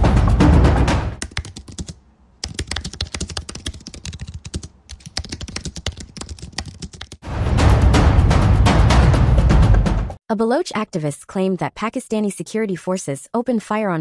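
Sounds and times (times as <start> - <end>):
fast typing on keyboard: 1.2 - 7.2.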